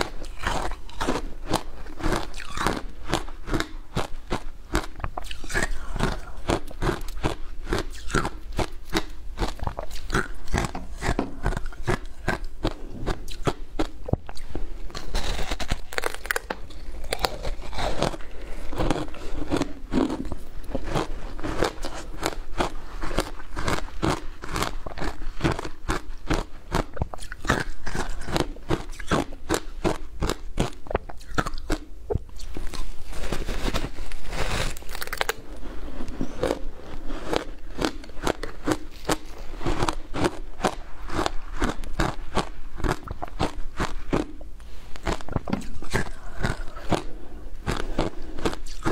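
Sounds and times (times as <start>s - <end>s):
crisp crunching of shaved ice: 14.9s - 29.6s, 32.4s - 35.5s.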